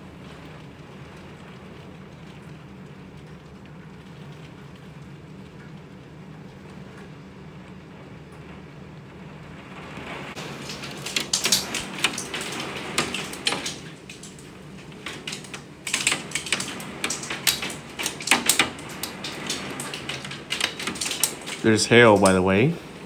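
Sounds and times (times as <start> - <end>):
rain hiss: 0.0 - 23.0
hail clattering on window glass: 9.8 - 23.0.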